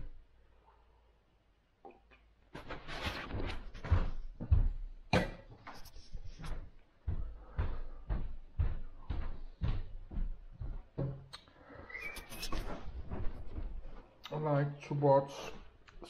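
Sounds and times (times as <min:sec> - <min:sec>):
footsteps on wooden floor: 0:02.5 - 0:14.2.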